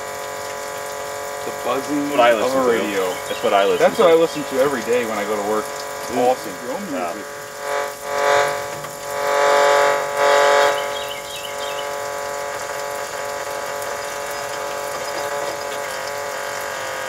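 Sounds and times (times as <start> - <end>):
radio electrical buzz: 0.0 - 17.0
water spray hissing: 0.0 - 17.0
warbling squeal: 7.2 - 16.6.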